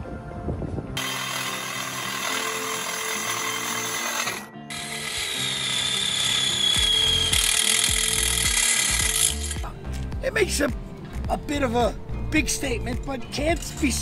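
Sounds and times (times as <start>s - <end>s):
background music: 0.0s - 14.0s
power tool cutting metal: 1.0s - 9.6s
high tool whine: 1.0s - 9.7s.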